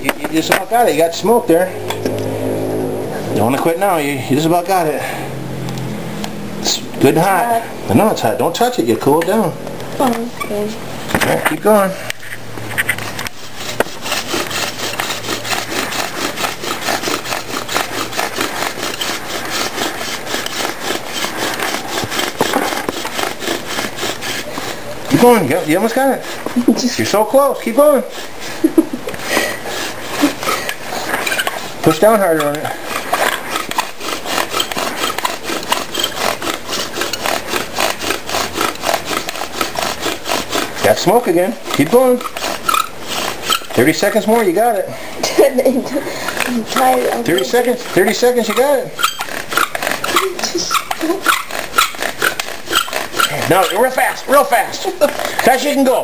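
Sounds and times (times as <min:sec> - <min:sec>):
bow drill spindle rasping: 0:12.9 - 0:44.7, 0:46.1 - 0:55.9.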